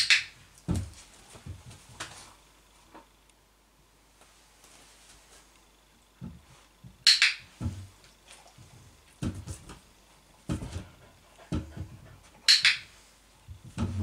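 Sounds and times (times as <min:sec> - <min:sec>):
dog-training clicker clicks: 0:12.5 - 0:12.8.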